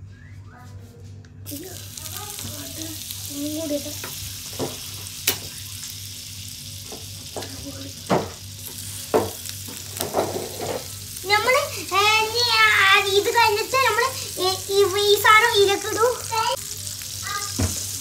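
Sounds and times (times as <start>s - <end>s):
butter sizzling in frying pan: 1.5s - 18.0s
taps and knocks against pan: 8.1s - 8.4s, 9.1s - 10.9s.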